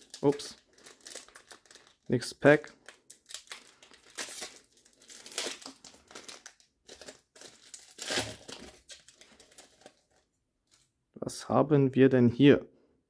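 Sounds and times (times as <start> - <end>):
wrapper crinkling: 0.0 - 10.9.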